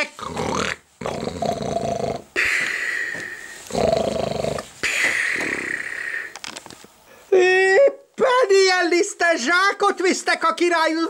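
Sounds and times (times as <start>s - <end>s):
person imitating snoring: 0.0s - 6.3s.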